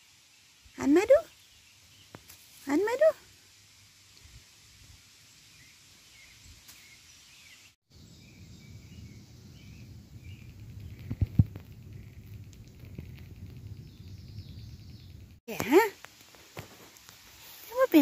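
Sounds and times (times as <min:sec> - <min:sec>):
faint bird chirps: 0:05.3 - 0:12.4, 0:13.0 - 0:15.4.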